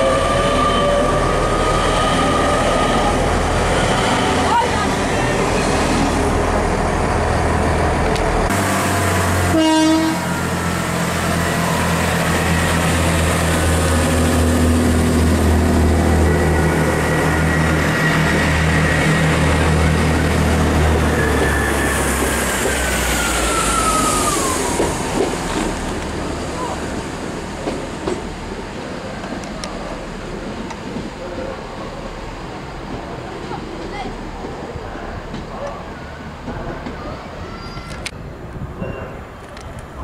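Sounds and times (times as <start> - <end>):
diesel train engine drone: 0.0 - 40.0
electric train passing: 0.0 - 40.0
train horn toot: 9.4 - 10.4.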